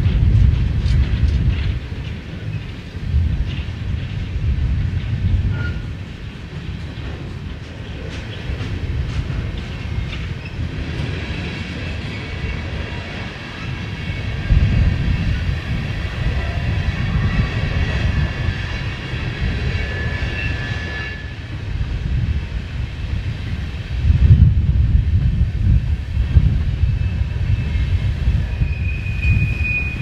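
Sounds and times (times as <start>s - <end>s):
freight train rolling: 0.0s - 30.0s
wind buffeting microphone: 0.0s - 30.0s
wheels squealing on rails: 5.0s - 21.7s, 26.3s - 30.0s.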